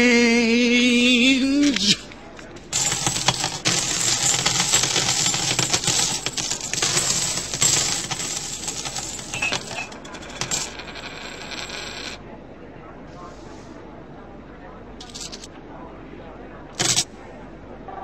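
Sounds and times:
coins clattering and jingling: 2.6 - 12.2, 15.0 - 15.5, 16.8 - 17.1.

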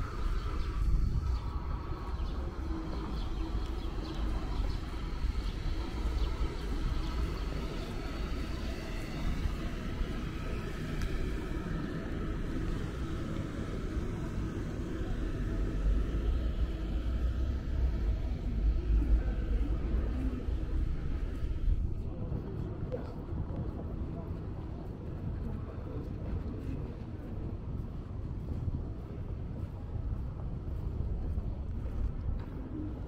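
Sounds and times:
road traffic rumble: 0.0 - 33.0.

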